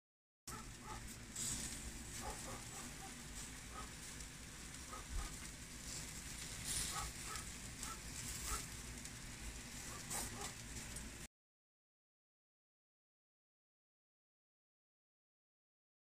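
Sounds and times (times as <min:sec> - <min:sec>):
meat sizzling over charcoal: 0:00.5 - 0:11.3.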